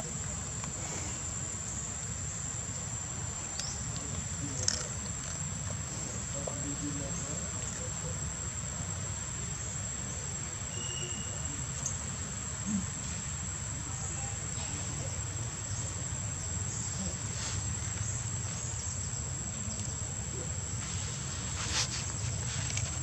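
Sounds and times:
shrill insect drone: 10.7s - 11.7s.

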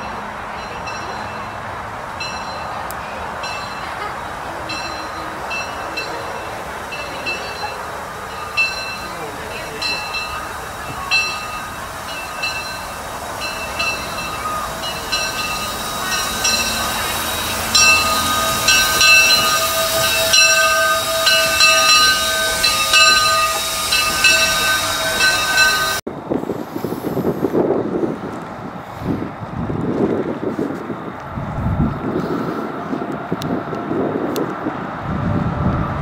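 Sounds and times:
locomotive bell ringing: 0.0s - 26.0s
steam hissing: 3.6s - 27.8s.

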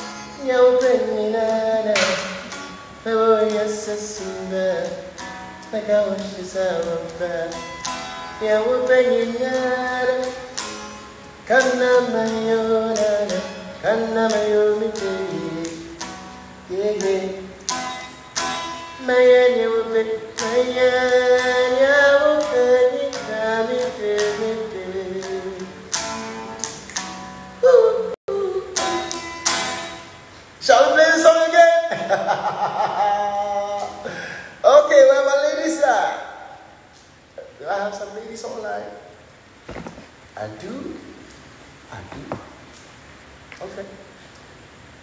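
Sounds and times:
man singing: 0.0s - 10.6s, 11.4s - 16.0s, 16.6s - 17.9s, 19.0s - 25.9s, 27.6s - 29.8s, 30.6s - 36.7s
strummed acoustic guitar: 0.0s - 36.5s.

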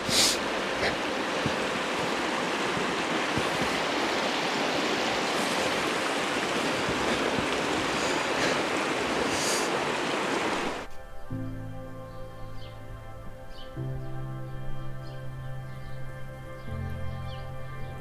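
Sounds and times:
water rushing over stones: 0.0s - 10.9s.

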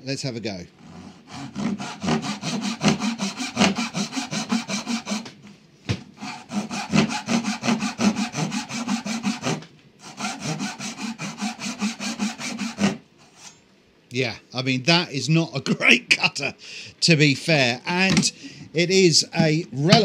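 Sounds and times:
hand saw cutting wood: 0.8s - 5.4s, 6.2s - 13.5s.

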